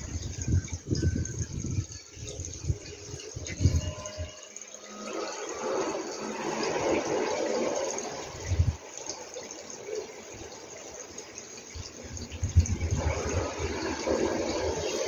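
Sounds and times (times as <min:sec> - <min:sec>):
wind rushing over microphone: 0:00.0 - 0:04.4, 0:05.6 - 0:08.9, 0:11.8 - 0:15.0.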